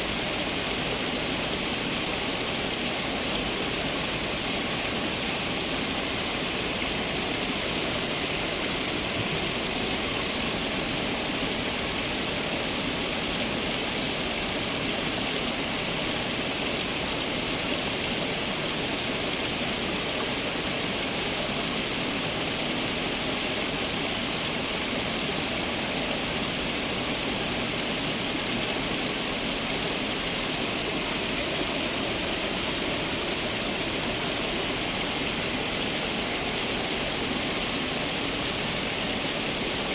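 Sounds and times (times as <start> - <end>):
fountain water splashing: 0.0 - 39.9.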